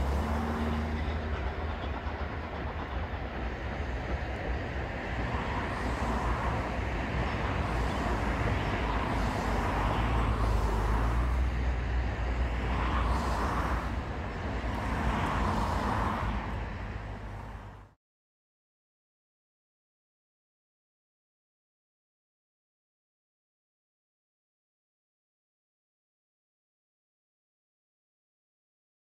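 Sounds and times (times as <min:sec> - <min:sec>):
distant steam train rumble: 0:00.0 - 0:18.0.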